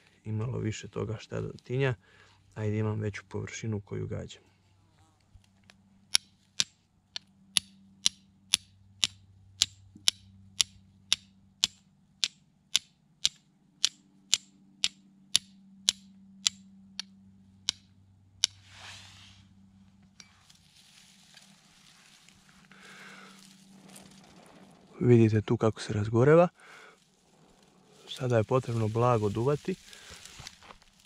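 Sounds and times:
fire striker clicking on flint: 0:05.4 - 0:18.6
brief rustling hiss: 0:18.6 - 0:19.5.

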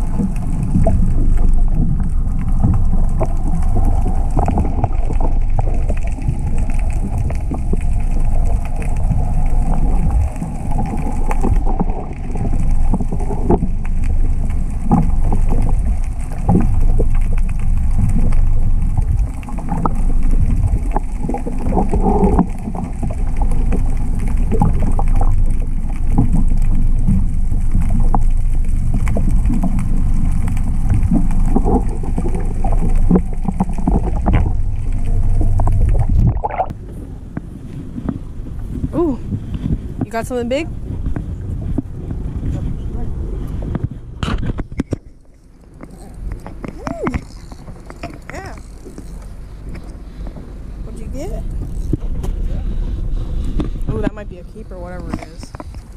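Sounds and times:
muffled underwater rumble: 0:00.0 - 0:55.9.

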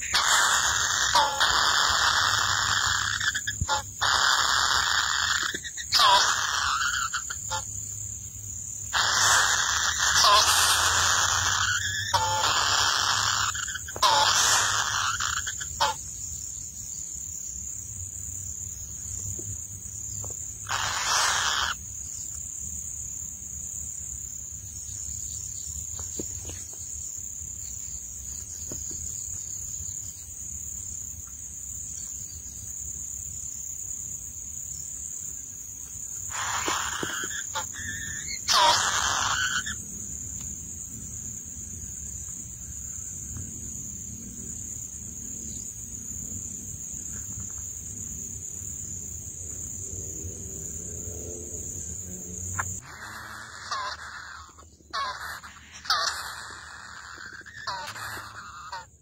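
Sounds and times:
nestlings rasping begging calls: 0:00.0 - 0:07.7, 0:08.9 - 0:16.1, 0:20.6 - 0:21.8, 0:36.3 - 0:39.8, 0:52.6 - 0:59.0.

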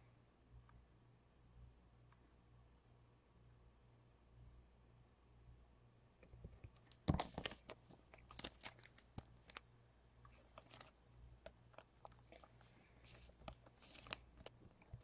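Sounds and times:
cards and wrappers crinkling: 0:06.8 - 0:09.6, 0:10.3 - 0:15.0
wrapper rustles: 0:07.2 - 0:09.6, 0:10.3 - 0:11.0, 0:11.8 - 0:15.0.

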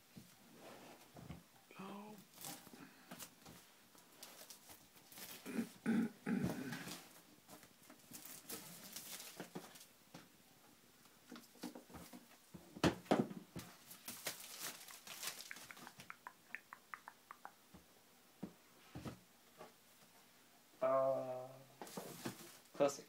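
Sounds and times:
plastic shrink wrap crackling: 0:08.0 - 0:09.9, 0:13.8 - 0:16.1.

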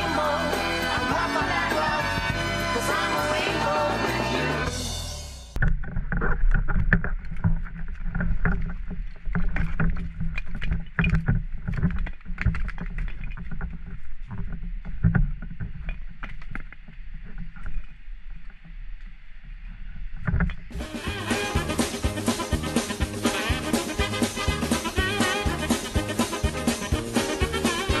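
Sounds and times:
gear knocking and rustling: 0:05.6 - 0:20.8.

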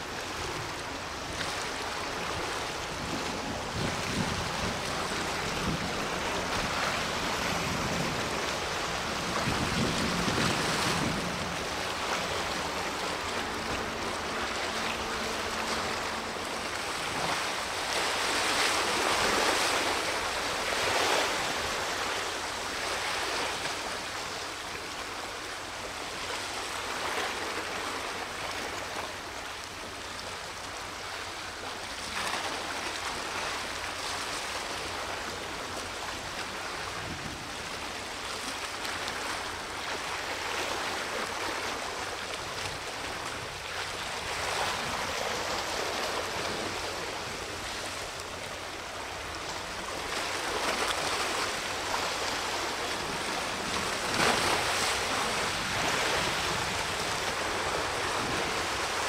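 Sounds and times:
surf washing and splashing: 0:00.0 - 0:59.0.

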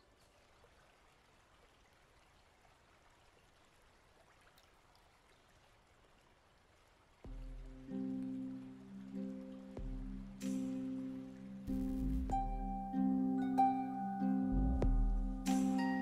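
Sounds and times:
faint outdoor hiss: 0:00.0 - 0:16.0
music with low sustained notes: 0:07.3 - 0:16.0.

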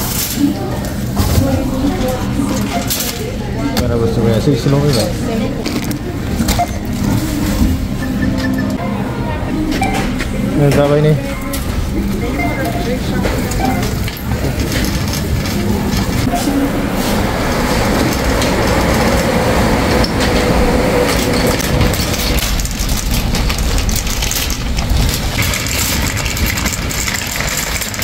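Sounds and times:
shopping cart rattling: 0:00.0 - 0:28.0.

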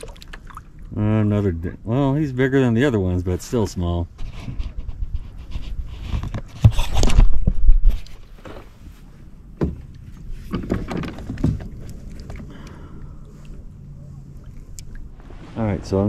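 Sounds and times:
kayak handling knocks and rubbing: 0:04.2 - 0:12.5.

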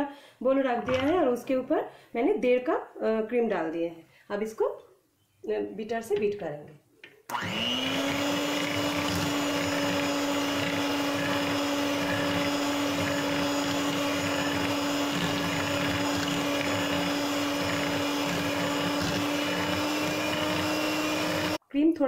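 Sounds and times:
electric hand mixer whining: 0:07.3 - 0:21.6.

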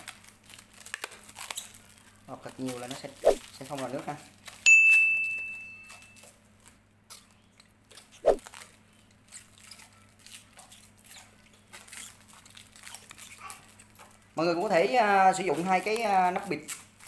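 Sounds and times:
plastic bag crinkling: 0:00.0 - 0:04.6, 0:08.0 - 0:17.0.

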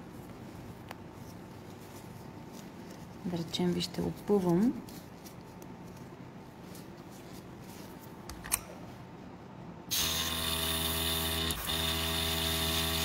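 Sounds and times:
airbrush compressor motor hum: 0:09.9 - 0:13.0.

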